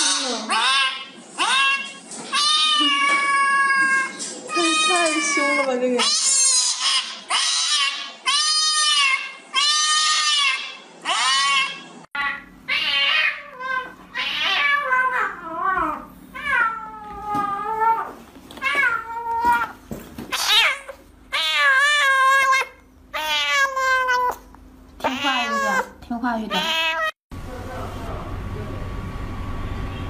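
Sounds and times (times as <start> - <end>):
cat meowing: 0.0 - 27.2.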